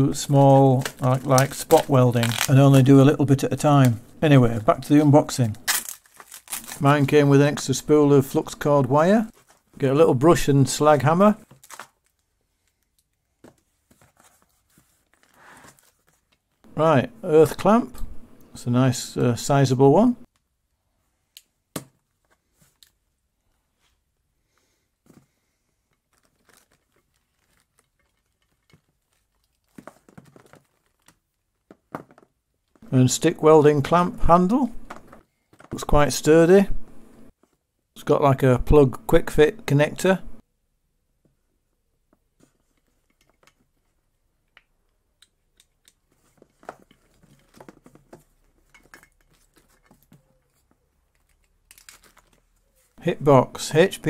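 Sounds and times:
plastic wrapping crinkling: 0.2s - 7.3s, 11.4s - 13.2s, 25.9s - 32.1s, 46.1s - 53.0s
faint clicks and rustles: 25.0s - 32.8s, 42.0s - 53.0s.

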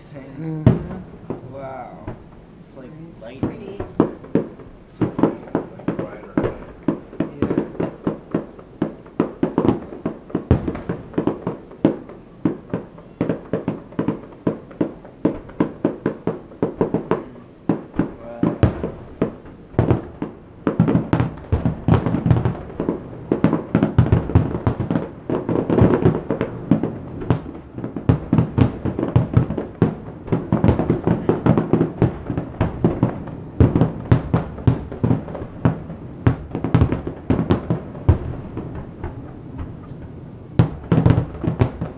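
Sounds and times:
fireworks bursting: 0.0s - 41.9s.

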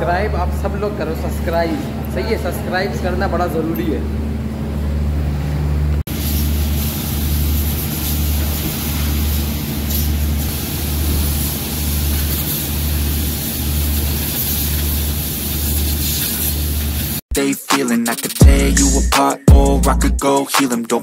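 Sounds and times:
pump motor drone: 0.0s - 15.8s
pressure washer water jet hissing: 6.1s - 17.2s.

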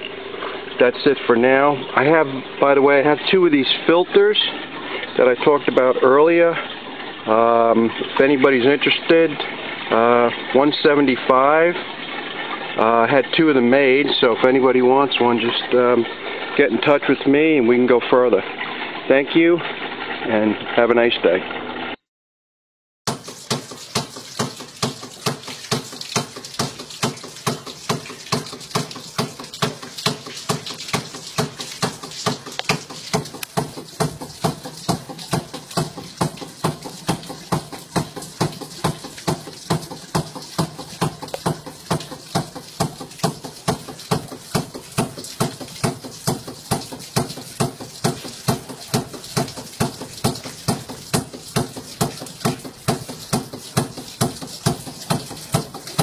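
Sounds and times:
pump valves clacking: 0.0s - 20.8s, 23.1s - 56.0s.

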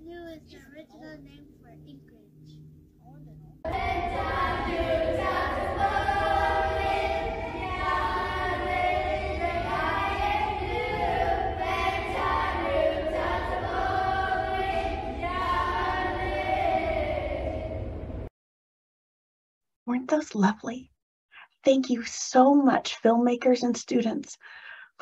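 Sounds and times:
children singing in unison: 3.7s - 18.0s.

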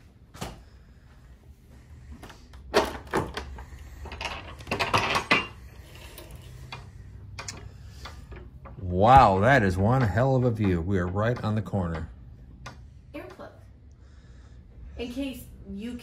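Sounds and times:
wooden shutters knocking: 9.2s - 12.2s.

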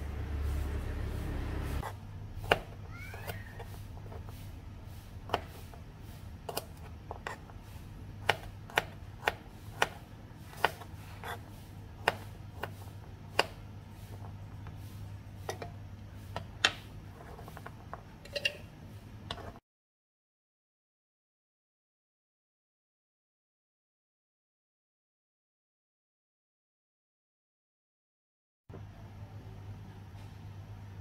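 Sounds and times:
low steady hum: 0.0s - 19.6s
knife chopping on plastic board: 1.8s - 4.3s, 5.2s - 5.8s, 6.4s - 7.6s, 8.2s - 14.8s.

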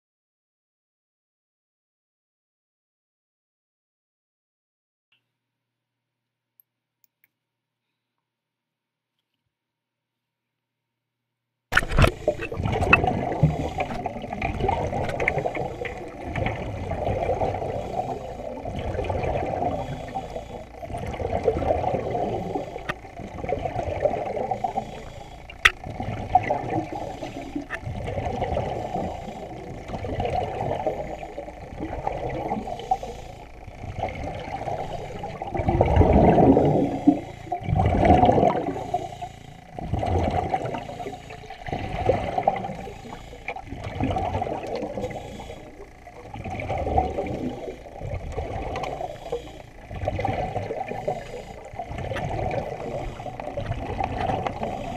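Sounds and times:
muffled underwater water noise: 11.7s - 54.9s
faint clicks: 24.6s - 25.8s.

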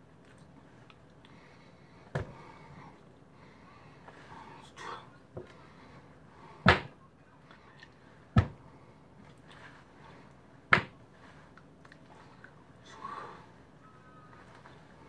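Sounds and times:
hands slapping countertop: 10.7s - 11.0s.

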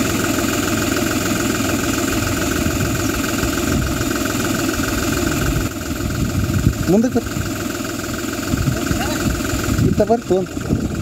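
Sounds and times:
engine running steadily: 0.0s - 11.0s.

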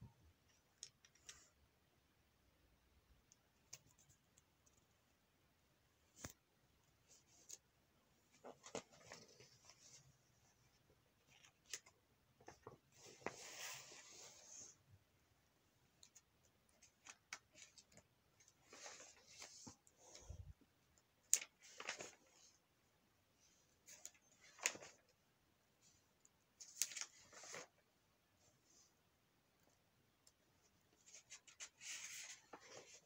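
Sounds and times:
magazine pages rustling: 8.3s - 10.1s, 16.8s - 20.2s, 21.4s - 22.6s, 23.8s - 25.2s, 26.6s - 27.8s, 31.0s - 33.0s.

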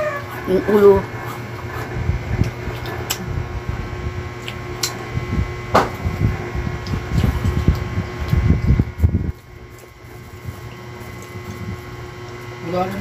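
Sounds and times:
fan-like machine hum: 0.0s - 13.0s
chewing and mouth noises: 1.1s - 3.3s, 4.4s - 5.0s, 6.8s - 12.5s.

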